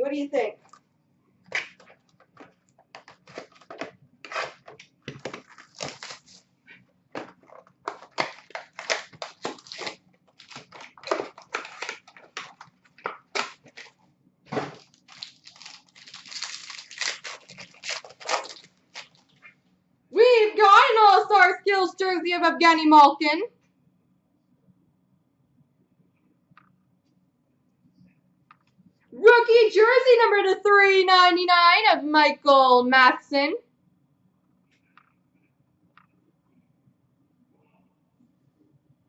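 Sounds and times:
foil wrapper crinkling and tearing: 0:01.5 - 0:06.5, 0:07.2 - 0:14.0, 0:14.6 - 0:19.4.

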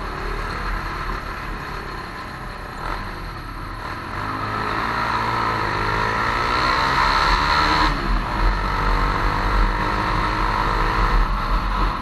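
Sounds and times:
motorcycle engine revving: 0:02.6 - 0:12.0.

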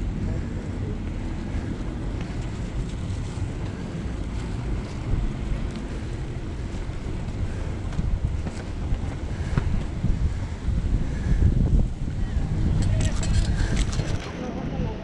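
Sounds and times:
wind rumbling on microphone: 0:00.0 - 0:15.0.

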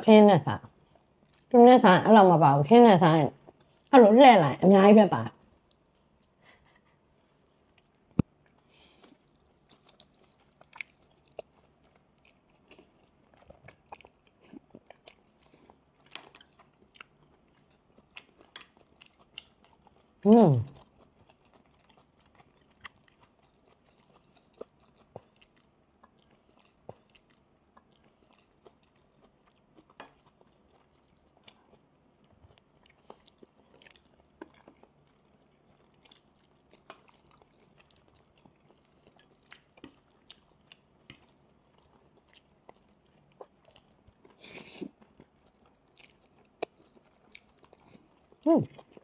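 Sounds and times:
people chewing: 0:05.6 - 0:49.0.

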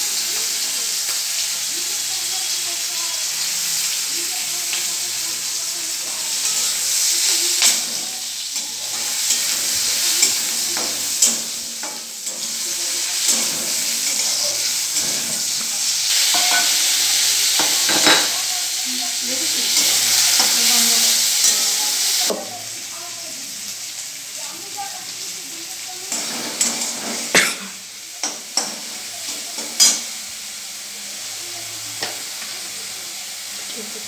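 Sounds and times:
vegetables sizzling in a wok: 0:00.0 - 0:34.0
metal spatula scraping a wok: 0:06.1 - 0:18.2, 0:26.1 - 0:27.3.

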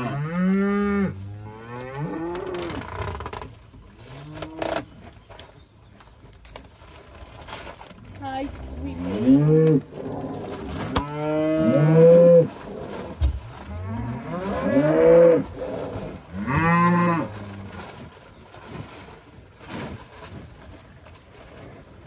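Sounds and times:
cows mooing: 0:08.9 - 0:12.5, 0:13.7 - 0:17.5.

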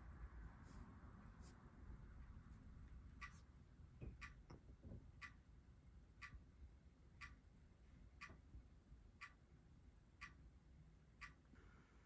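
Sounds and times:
clock ticking through speakers: 0:02.2 - 0:06.6, 0:07.2 - 0:11.6.

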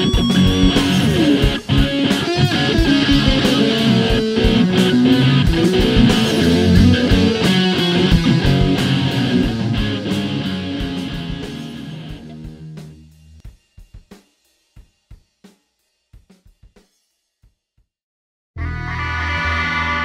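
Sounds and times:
guitar music with steady beat: 0:00.0 - 0:14.1.

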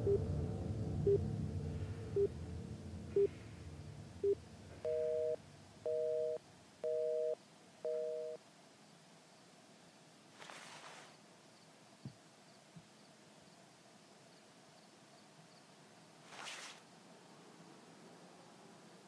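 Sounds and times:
telephone busy signal beeps: 0:04.2 - 0:08.4.

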